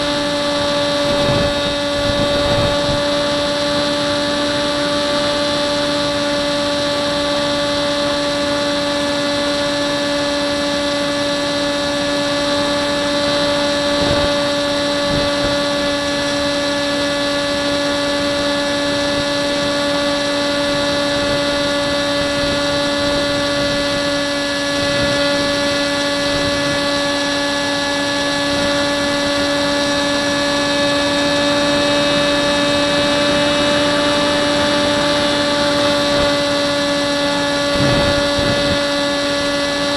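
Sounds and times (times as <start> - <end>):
electric motor and propeller whining: 0.0 - 39.9
wind noise: 0.0 - 39.9.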